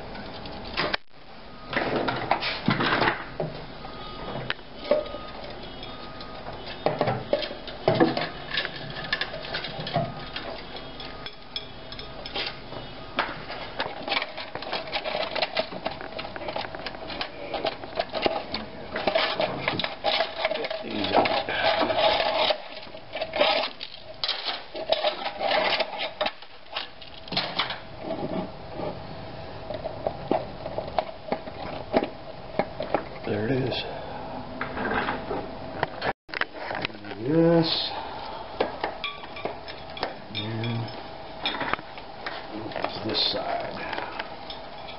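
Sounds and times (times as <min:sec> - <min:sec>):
hand tools clinking and rattling: 0:04.8 - 0:12.6, 0:13.2 - 0:28.5, 0:36.8 - 0:44.9.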